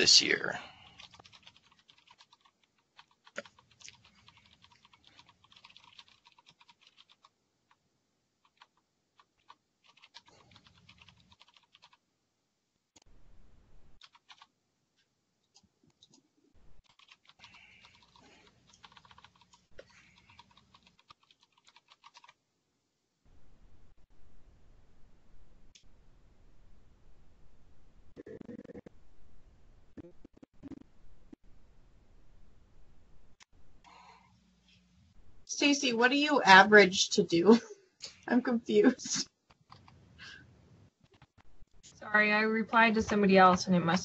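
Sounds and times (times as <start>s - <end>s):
faint keyboard typing: 0.0s - 12.0s, 14.0s - 22.4s, 33.8s - 34.8s, 38.1s - 40.4s, 41.0s - 44.0s.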